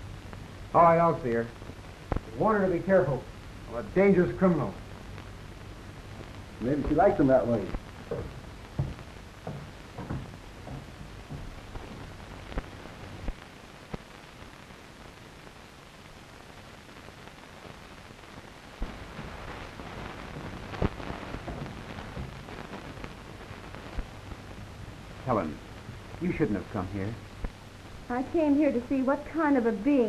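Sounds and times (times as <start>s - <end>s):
film soundtrack hiss: 0.0s - 30.0s
clicks and knocks: 8.1s - 13.4s.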